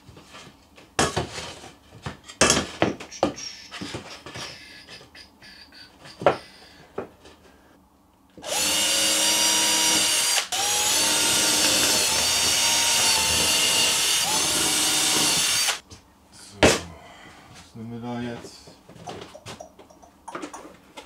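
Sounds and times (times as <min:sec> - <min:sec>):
electric drill whining: 0:08.4 - 0:15.8.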